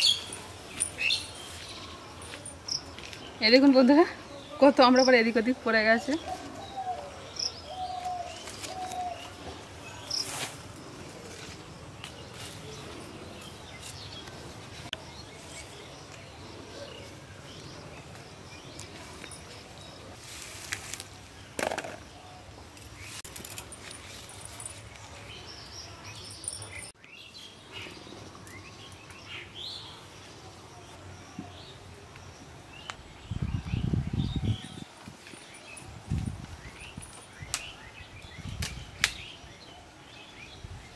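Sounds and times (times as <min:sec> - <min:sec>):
birds chirping: 0:00.0 - 0:11.1, 0:21.3 - 0:40.9
leafy branches rustling: 0:00.0 - 0:21.6, 0:22.6 - 0:26.8
outdoor ambience: 0:00.0 - 0:40.9.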